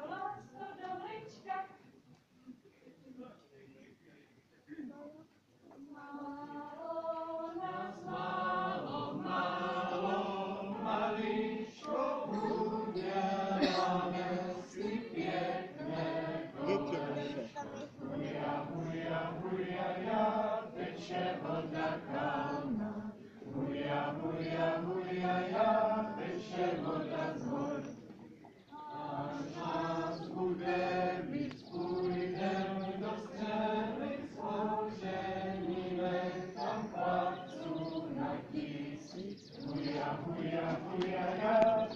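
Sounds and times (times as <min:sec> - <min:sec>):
group singing folk song: 0:05.8 - 0:41.9.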